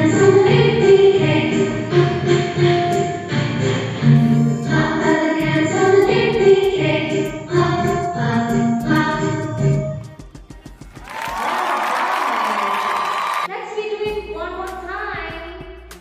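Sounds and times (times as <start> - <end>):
song with singing voices: 0.0 - 10.6.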